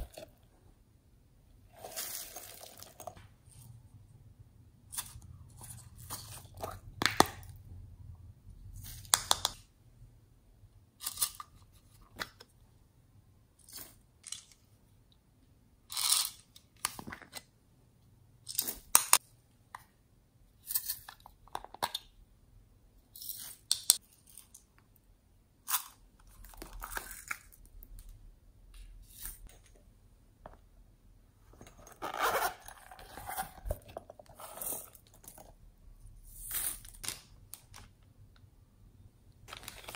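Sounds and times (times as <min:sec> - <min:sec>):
zipper on fabric pouch: 0:31.9 - 0:33.4.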